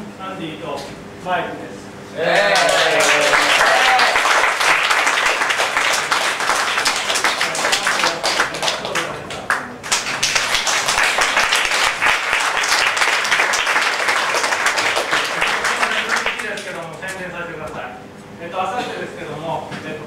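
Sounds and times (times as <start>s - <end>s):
audience applauding: 2.3s - 16.9s.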